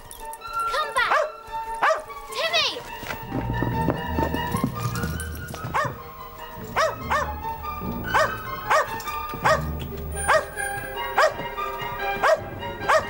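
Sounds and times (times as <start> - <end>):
dog barking: 1.1 - 2.1, 5.7 - 6.0, 6.7 - 7.4, 8.1 - 10.6, 11.2 - 11.5, 12.2 - 13.0.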